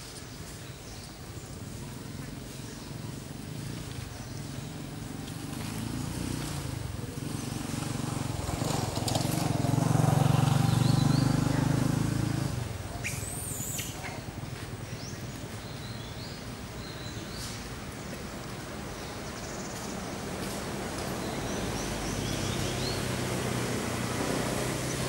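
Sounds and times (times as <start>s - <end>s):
vehicle passing: 2.8s - 13.2s, 17.4s - 25.0s
bird chirps: 12.9s - 17.6s.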